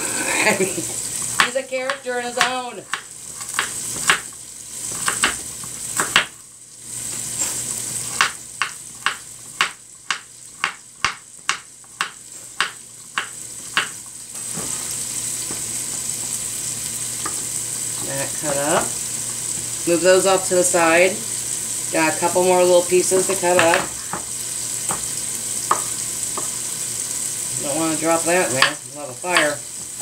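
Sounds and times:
chicken sizzling in pot: 0.0s - 30.0s
knife chopping on wooden board: 1.4s - 4.3s, 4.9s - 6.4s, 8.1s - 14.0s, 25.7s - 26.5s.

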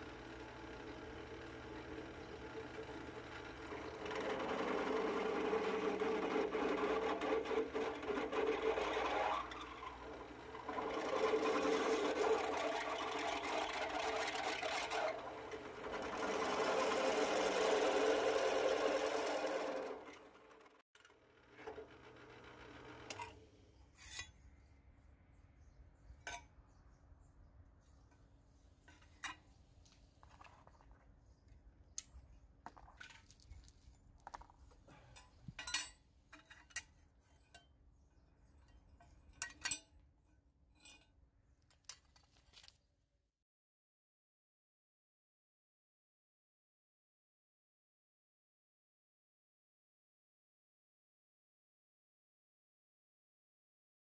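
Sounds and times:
drill press running: 0.0s - 23.3s
drill bit cutting steel: 0.4s - 20.6s.

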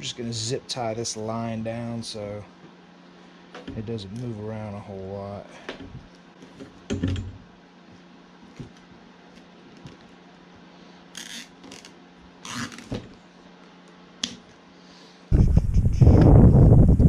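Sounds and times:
faint steady hum: 0.0s - 17.0s
zip ties rasping: 11.2s - 12.9s
wind buffeting microphone: 15.4s - 17.0s.

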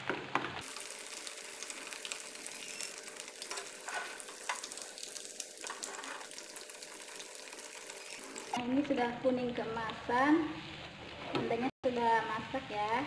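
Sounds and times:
egg sizzling in hot oil: 0.6s - 8.6s.

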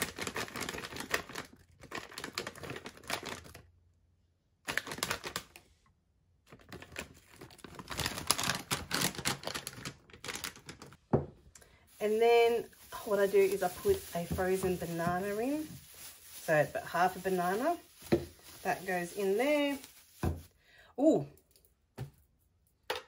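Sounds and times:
frozen berries rattling into a cup: 0.0s - 3.6s, 11.9s - 20.5s.

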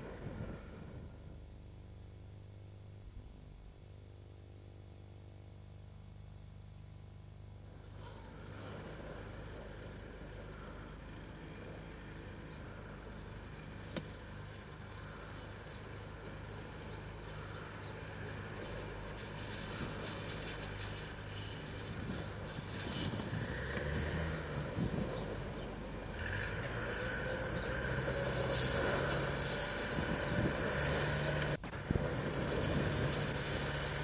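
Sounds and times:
low tape hum: 0.0s - 34.0s
small motorbike engine: 7.4s - 34.0s.

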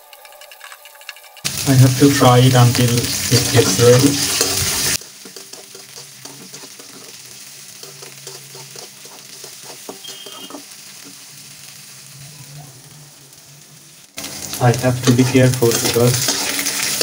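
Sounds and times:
low frying sizzle: 0.0s - 17.0s
spoon stirring rattling nuts: 3.2s - 10.7s, 14.8s - 17.0s.

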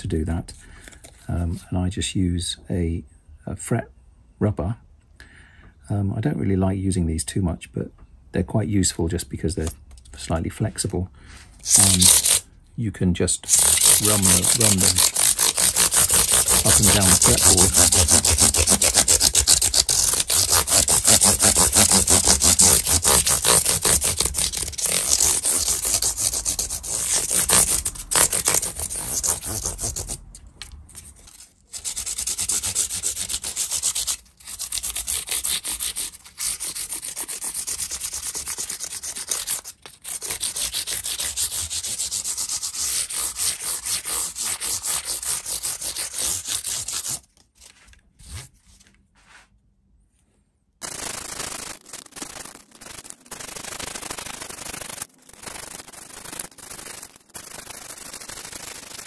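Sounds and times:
rubber block scrubbing metal frets: 13.5s - 30.4s.

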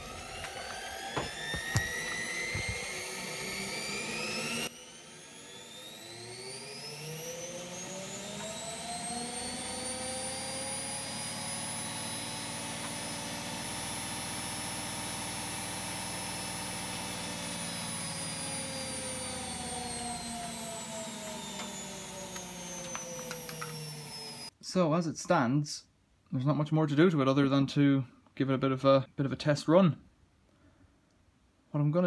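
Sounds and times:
electric motor whine: 0.0s - 24.5s.

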